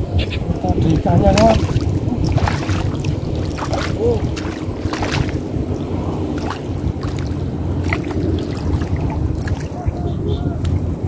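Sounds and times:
steady low rumble: 0.0s - 11.0s
fish splashing in water: 0.5s - 10.8s.

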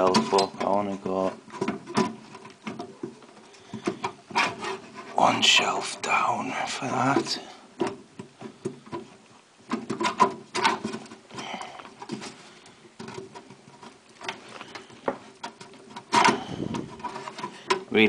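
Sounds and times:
hard drive scraping in metal cage: 3.9s - 5.2s.

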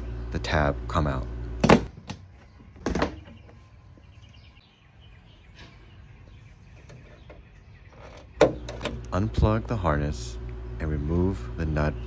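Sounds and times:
faint bird chirps: 2.3s - 8.7s.

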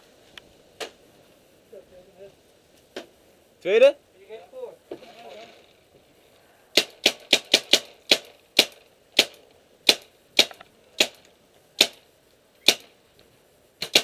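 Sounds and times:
paintball marker shots: 6.8s - 12.0s, 12.6s - 12.9s, 13.8s - 14.0s.

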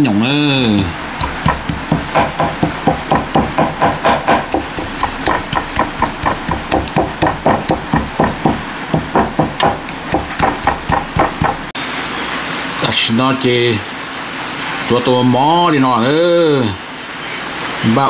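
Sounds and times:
knife chopping on wooden board: 0.6s - 11.7s.

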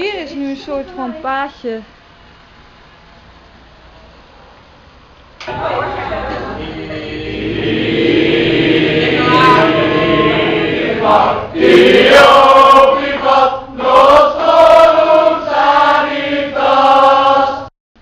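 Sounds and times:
group singing in chorus: 5.4s - 17.7s.

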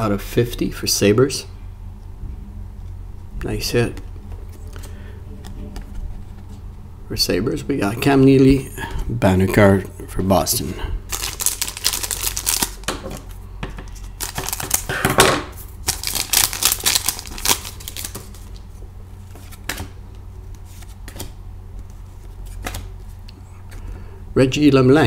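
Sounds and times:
foil wrapper crinkling and tearing: 11.1s - 13.0s, 14.0s - 15.0s, 15.8s - 18.6s
cards sliding and clicking: 19.3s - 19.9s, 20.5s - 23.2s.

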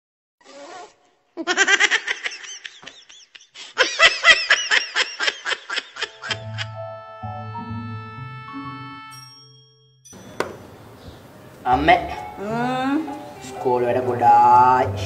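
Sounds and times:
high-pitched laughter: 1.4s - 6.8s
light music with bass line: 6.4s - 9.4s.

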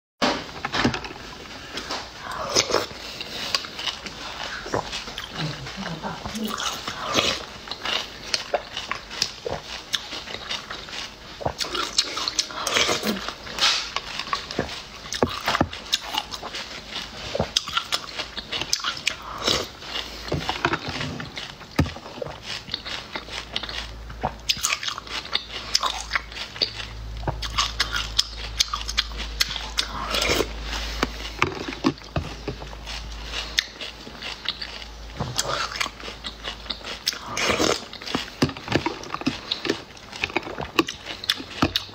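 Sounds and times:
sucking and chewing snails: 0.2s - 41.9s.

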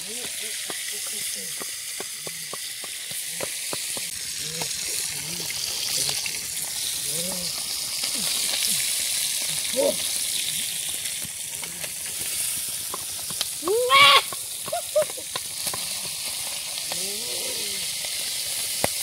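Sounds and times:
fish sizzling in hot oil: 0.0s - 19.0s
short voice-like calls: 13.6s - 14.3s.

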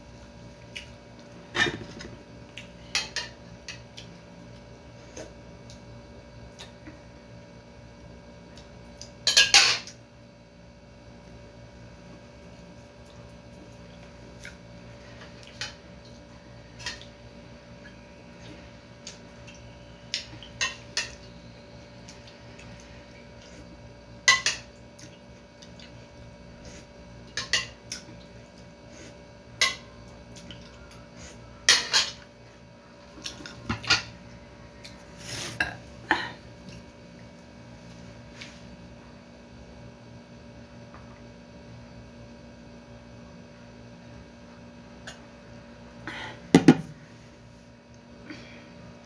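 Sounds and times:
faint steady hum: 0.0s - 49.0s.

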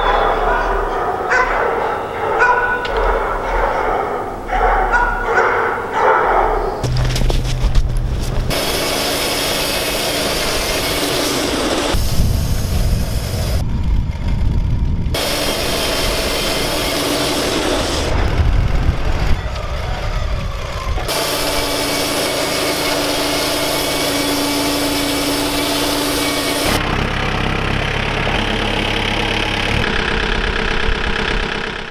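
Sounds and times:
sawmill engine rumble: 0.0s - 31.9s
band blade sawing log: 6.8s - 12.0s, 21.1s - 26.8s.

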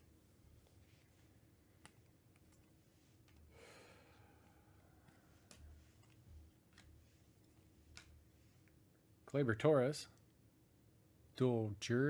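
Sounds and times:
cards being flipped through: 0.6s - 3.5s, 5.0s - 8.6s.

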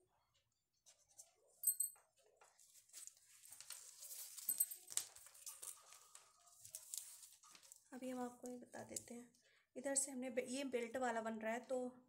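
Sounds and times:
paper rustling and crinkling: 2.2s - 8.0s.

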